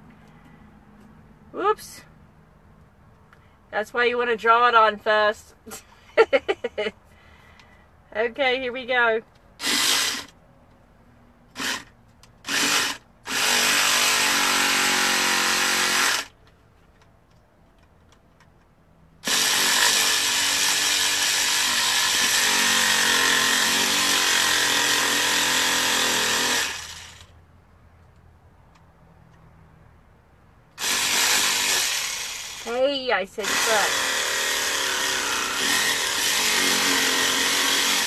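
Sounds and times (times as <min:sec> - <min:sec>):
carving tool cutting pumpkin: 0:33.4 - 0:38.0.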